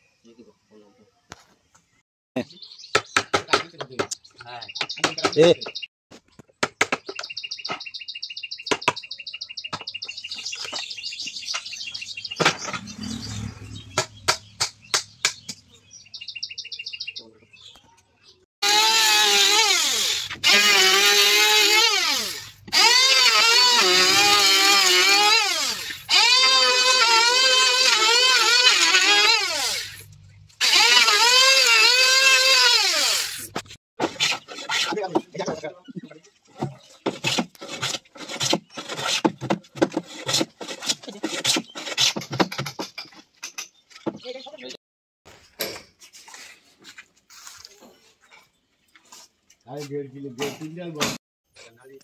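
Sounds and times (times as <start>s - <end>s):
bird chirping: 0.0s - 18.4s
hammer and chisel on wood: 2.9s - 5.8s, 6.4s - 7.8s, 14.0s - 15.6s, 34.0s - 44.2s
rasping scrape: 33.3s - 35.3s, 37.0s - 43.2s.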